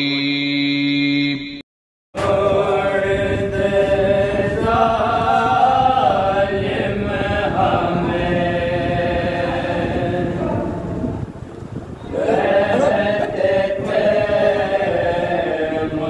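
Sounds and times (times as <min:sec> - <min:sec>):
men chanting a lament: 0:02.2 - 0:11.0, 0:12.1 - 0:16.0
person reciting: 0:12.2 - 0:16.0.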